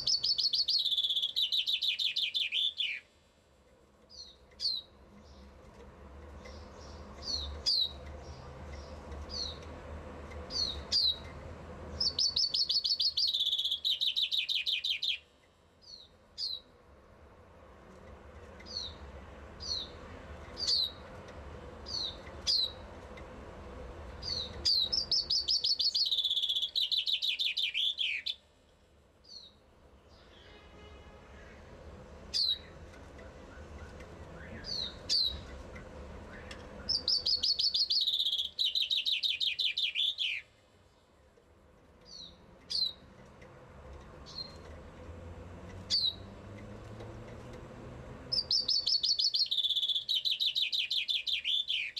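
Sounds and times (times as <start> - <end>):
finch singing descending trill: 0.0 - 3.1, 12.0 - 15.3, 24.2 - 28.4, 36.3 - 40.5, 48.3 - 51.9.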